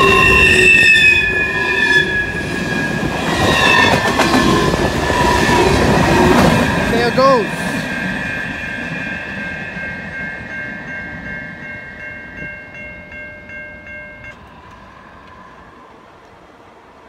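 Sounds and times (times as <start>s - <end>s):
crossing warning bell ringing: 0.0s - 4.0s, 6.6s - 15.7s
freight train rumble: 0.0s - 17.0s.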